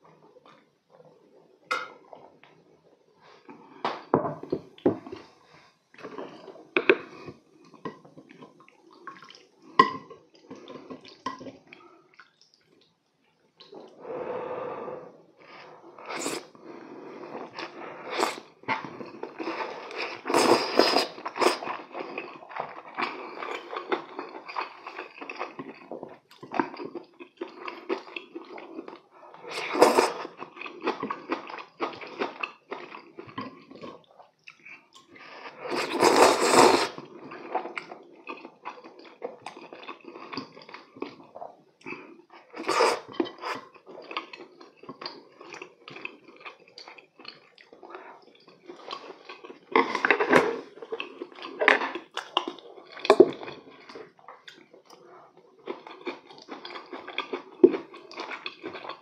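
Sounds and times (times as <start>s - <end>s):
wet chewing and slurping noodles: 15.4s - 59.0s.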